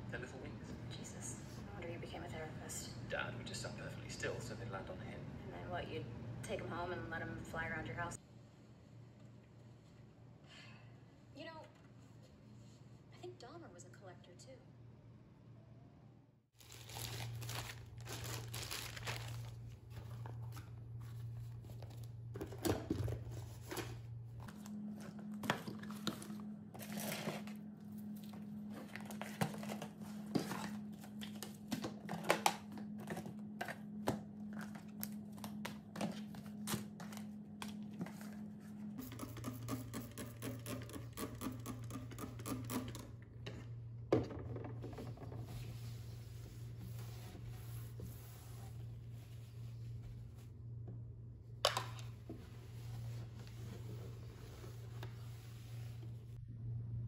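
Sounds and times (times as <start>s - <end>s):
steady low hum: 14.6s - 57.0s
plastic bags crinkling: 16.6s - 20.0s.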